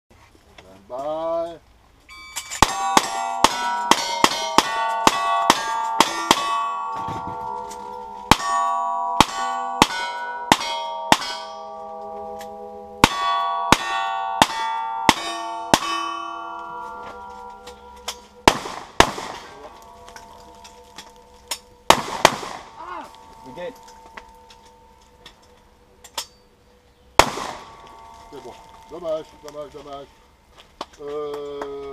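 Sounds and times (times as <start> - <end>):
steel plate ringing: 2.1 - 30.2
gunshots: 18.4 - 19.7, 21.9 - 23.8, 27.2 - 27.9.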